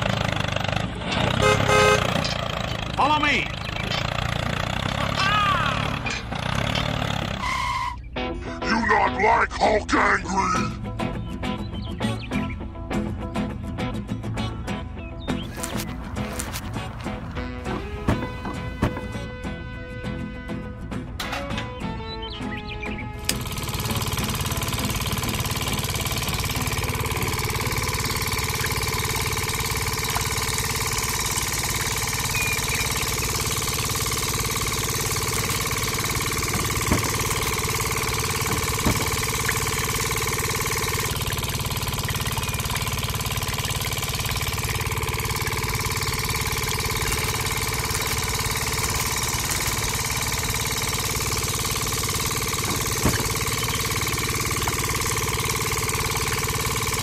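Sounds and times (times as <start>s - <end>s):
small motor humming: 23.2s - 57.0s.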